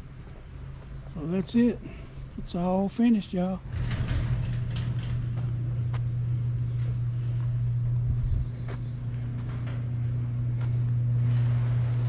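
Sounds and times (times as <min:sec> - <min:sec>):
light footsteps on concrete: 0:00.0 - 0:02.5, 0:05.3 - 0:11.0
low hum: 0:00.0 - 0:12.0
high-pitched insect drone: 0:06.2 - 0:12.0.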